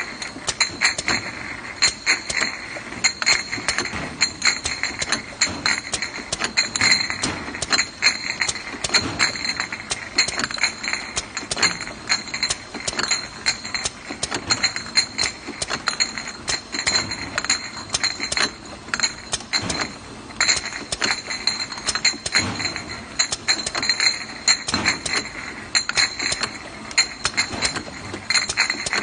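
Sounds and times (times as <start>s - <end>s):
glass bottles clinking: 0.0s - 29.0s.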